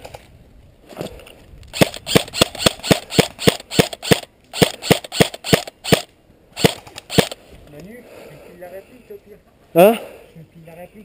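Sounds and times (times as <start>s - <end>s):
airsoft rifle shots: 1.7s - 7.4s.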